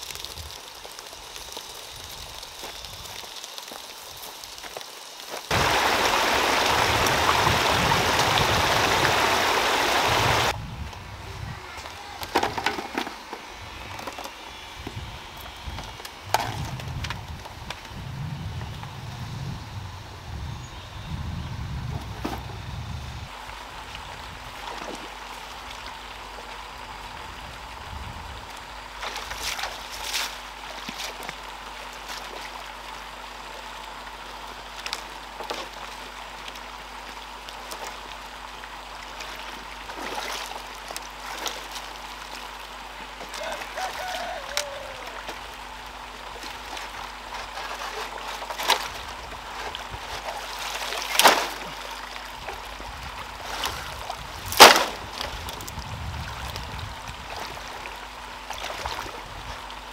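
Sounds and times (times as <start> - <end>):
water trickling and splashing: 0.0 - 10.6, 23.3 - 59.9.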